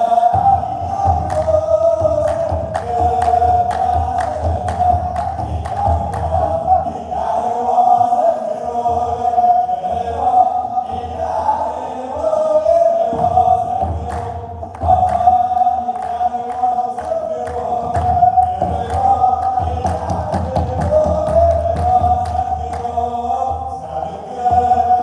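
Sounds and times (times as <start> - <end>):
large drum beats: 0.0 - 25.0
men's choir chanting a hymn: 0.0 - 25.0
hand clapping: 1.1 - 6.6, 13.9 - 23.0.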